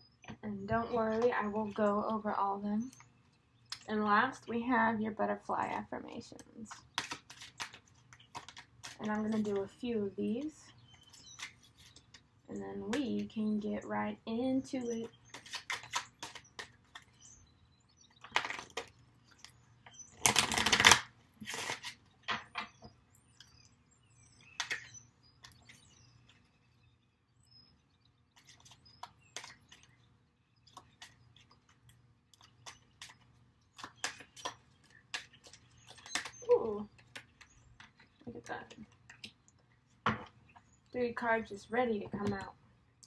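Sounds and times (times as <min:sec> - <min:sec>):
cards clicking and tapping: 0:06.7 - 0:09.6, 0:14.8 - 0:17.1, 0:18.2 - 0:19.5, 0:20.2 - 0:22.7, 0:24.6 - 0:25.8, 0:28.4 - 0:29.9, 0:30.7 - 0:36.4
cards shuffling: 0:06.8 - 0:09.6, 0:15.2 - 0:17.1, 0:20.2 - 0:22.0, 0:28.4 - 0:29.9, 0:32.4 - 0:36.4.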